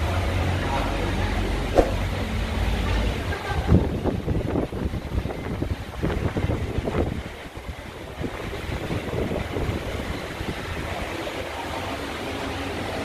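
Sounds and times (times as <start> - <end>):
steady low rumbling: 0.0 - 11.5
handling bumps on microphone: 1.8 - 2.0.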